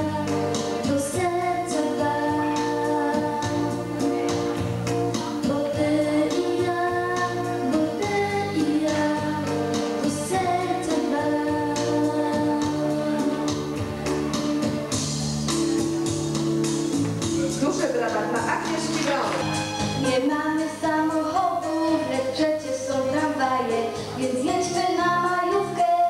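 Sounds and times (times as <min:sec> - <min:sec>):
girl singing into microphone: 0:00.0 - 0:04.4, 0:05.2 - 0:13.6, 0:20.0 - 0:26.0.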